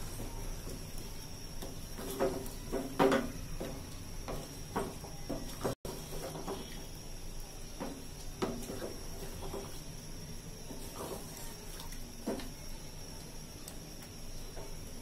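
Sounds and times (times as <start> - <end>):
wooden spatula stirring curry: 0.0 - 7.0, 7.6 - 10.0, 10.6 - 12.6.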